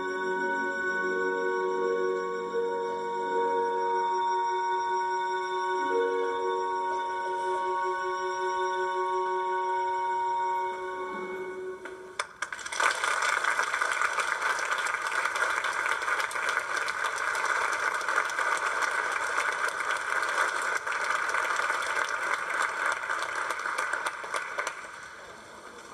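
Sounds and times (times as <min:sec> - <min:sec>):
audience applauding: 0:12.2 - 0:25.9.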